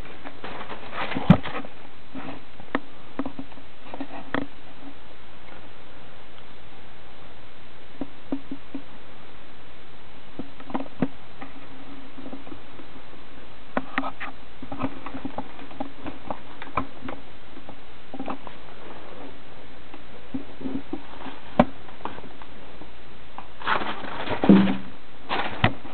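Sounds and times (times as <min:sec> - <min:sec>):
guinea pig rustling in bedding: 0:00.0 - 0:02.5, 0:23.4 - 0:25.9
steady hiss: 0:00.0 - 0:25.9.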